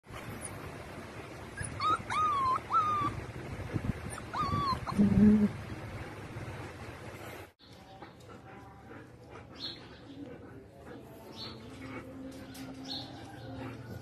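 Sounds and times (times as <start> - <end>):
puppies whining: 1.6 - 3.2, 4.1 - 5.5
puppy calling: 1.6 - 3.2, 4.1 - 5.5.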